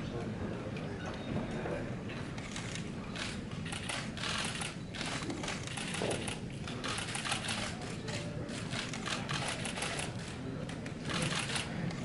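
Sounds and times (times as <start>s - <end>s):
camera shutters clicking: 2.4s - 10.3s, 11.0s - 12.0s.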